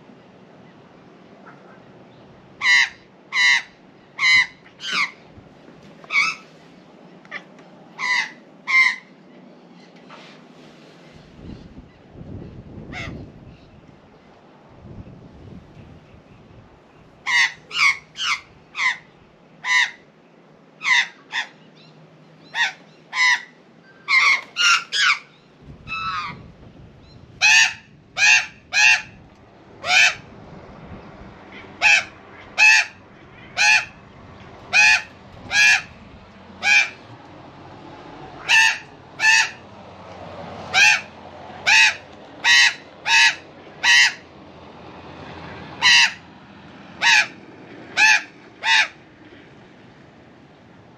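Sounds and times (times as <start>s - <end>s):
magpie squawking harshly: 2.6s - 5.2s, 6.1s - 6.4s, 8.0s - 9.1s, 17.3s - 20.0s, 20.8s - 21.5s, 22.5s - 25.3s, 25.9s - 26.4s, 27.4s - 29.2s, 29.8s - 30.2s, 31.6s - 34.0s, 34.7s - 36.0s, 36.6s - 37.0s, 38.4s - 39.6s, 40.7s - 44.2s, 45.8s - 46.2s, 47.0s - 47.4s, 48.0s - 49.0s.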